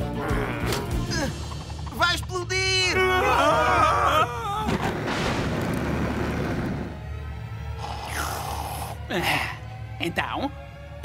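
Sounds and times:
background music score: 0.0 - 11.0
cartoon voices yelling in alarm: 2.9 - 4.7
loud crash sound effect: 4.7 - 6.9.

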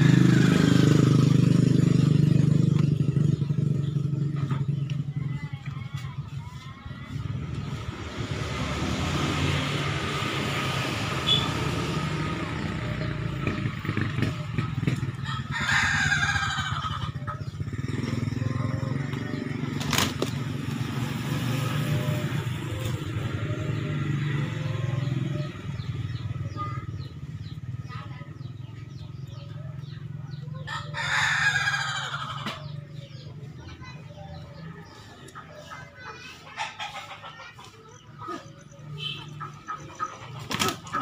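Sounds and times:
rooster crowing: 15.3 - 17.0, 30.7 - 32.4.

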